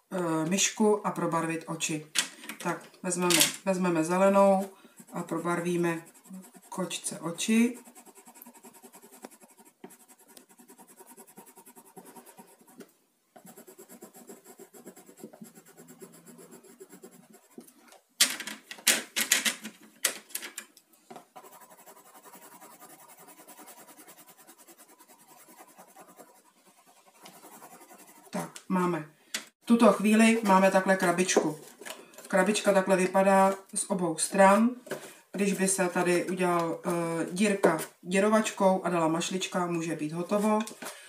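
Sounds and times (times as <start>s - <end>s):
pencils clattering in plastic case: 2.2s - 3.6s, 18.2s - 20.7s
pencil scratching on paper: 4.0s - 12.8s, 13.4s - 17.8s, 21.3s - 28.7s.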